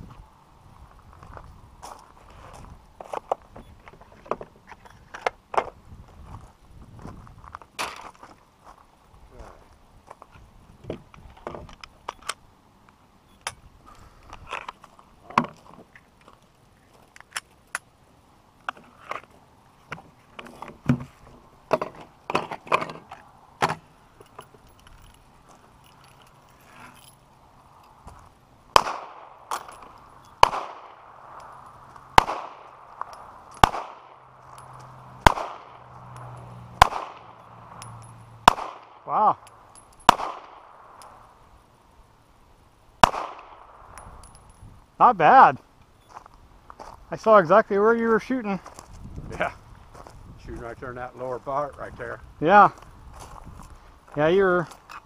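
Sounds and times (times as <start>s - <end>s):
loud pistol shots: 28.7s - 29.6s, 30.4s - 31.2s, 32.1s - 32.9s, 33.6s - 34.2s, 35.2s - 35.8s, 36.8s - 37.4s, 38.4s - 39.1s, 40.0s - 41.0s, 43.0s - 43.9s.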